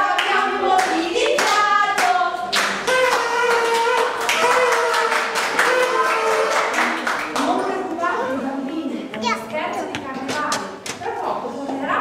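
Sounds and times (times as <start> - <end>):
voices singing: 0.0 - 7.0
hands clapping: 0.2 - 7.7.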